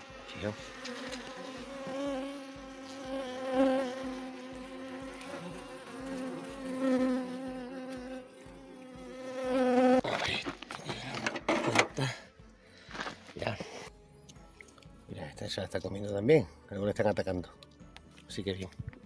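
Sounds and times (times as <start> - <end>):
honeybees buzzing: 0.0 - 10.0
rustling and knocking handling noise: 10.4 - 12.0.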